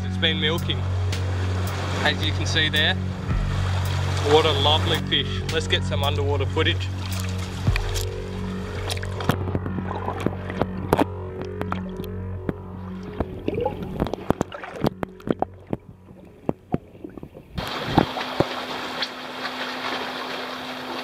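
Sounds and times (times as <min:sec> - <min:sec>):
low hum: 0:00.0 - 0:21.0
washing water: 0:06.9 - 0:12.2, 0:13.0 - 0:21.0
underwater clicks and ticks: 0:07.0 - 0:19.2.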